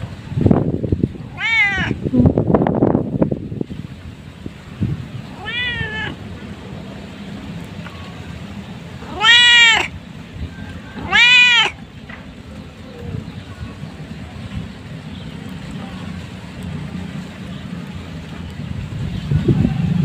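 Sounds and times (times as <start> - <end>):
cat meowing: 1.2 - 2.0, 5.3 - 6.2, 9.0 - 10.0, 11.0 - 11.8.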